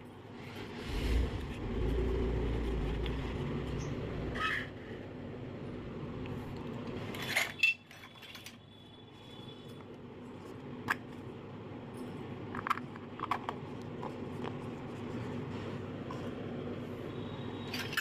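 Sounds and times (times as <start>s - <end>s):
low background rumble: 0.6s - 4.5s.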